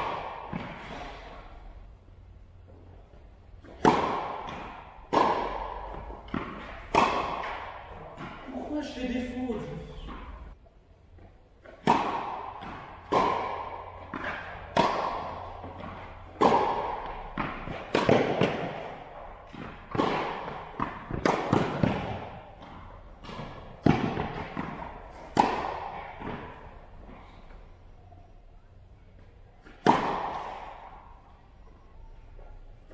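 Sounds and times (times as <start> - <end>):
tennis ball bouncing on court: 2.7 - 8.6, 11.2 - 27.6, 29.6 - 31.2
tennis ball racket strikes: 3.6 - 8.4, 11.6 - 26.7, 29.6 - 31.1.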